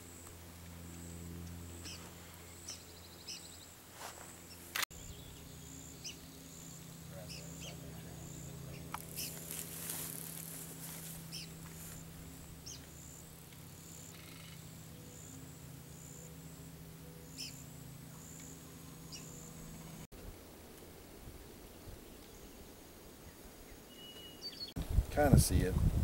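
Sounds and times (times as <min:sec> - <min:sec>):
steady low hum: 0:00.0 - 0:26.0
bird chirps: 0:04.4 - 0:09.6, 0:11.2 - 0:11.6, 0:17.0 - 0:20.0, 0:23.7 - 0:24.8.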